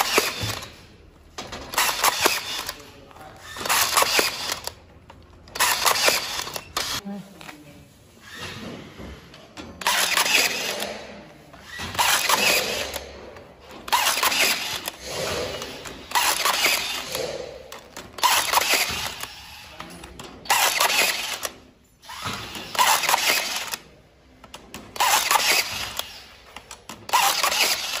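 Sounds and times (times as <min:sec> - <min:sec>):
rebar tying tool motor bursts: 0:00.0 - 0:00.8, 0:01.6 - 0:02.8, 0:03.4 - 0:04.8, 0:05.5 - 0:07.0, 0:09.8 - 0:13.2, 0:13.9 - 0:19.8, 0:20.4 - 0:23.8, 0:25.0 - 0:28.0.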